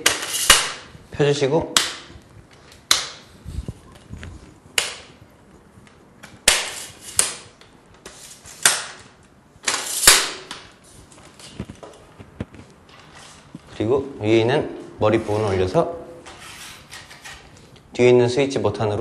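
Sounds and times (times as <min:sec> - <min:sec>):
easel legs scraping out: 0:16.2 - 0:17.5.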